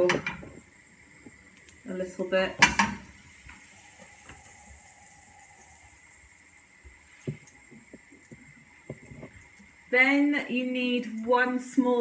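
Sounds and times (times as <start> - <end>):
gas hob hissing: 0.0 - 12.0.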